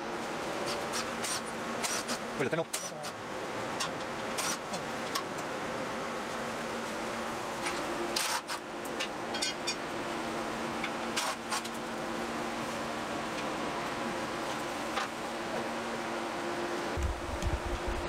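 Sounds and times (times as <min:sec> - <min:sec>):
electric fan humming: 0:00.0 - 0:18.0.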